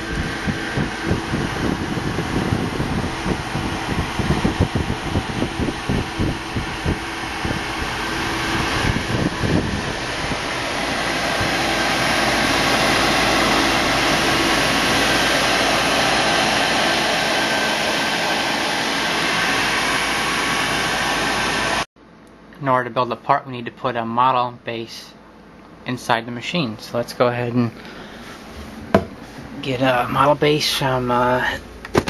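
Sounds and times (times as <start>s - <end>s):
low thumps and rumbling: 0.0s - 15.3s, 28.4s - 29.8s.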